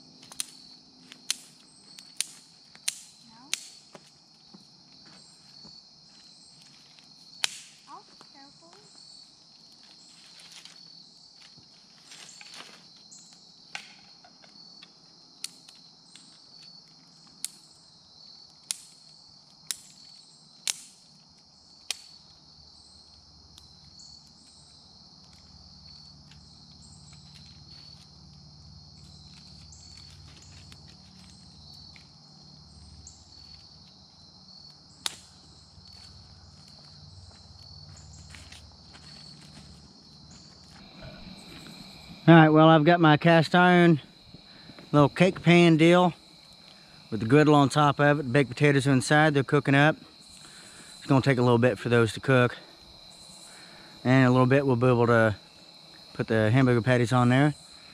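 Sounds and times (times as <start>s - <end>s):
insects chirping: 0.0s - 57.9s
dry twigs snapping: 0.2s - 3.8s, 6.9s - 7.8s, 18.6s - 21.0s, 35.0s - 36.9s.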